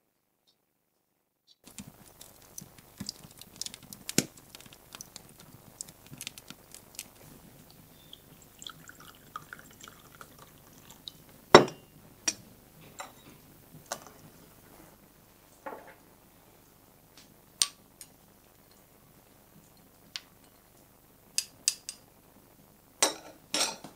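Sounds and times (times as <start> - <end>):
wood fire crackling: 1.6 - 11.4
tea pouring into cup: 1.7 - 11.3.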